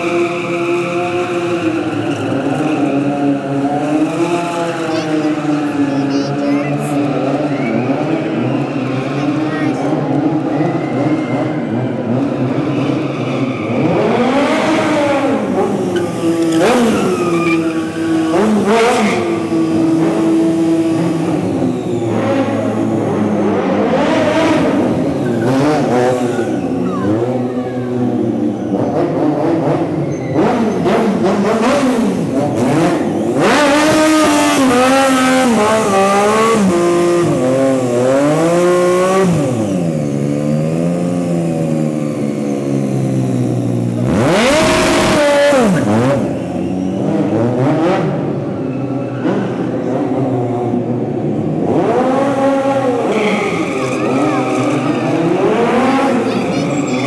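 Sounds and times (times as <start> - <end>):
motorcycle engine revving: 0.0 - 57.0
tyre squeal: 15.8 - 19.5, 30.0 - 30.9, 45.3 - 47.4, 53.0 - 57.0.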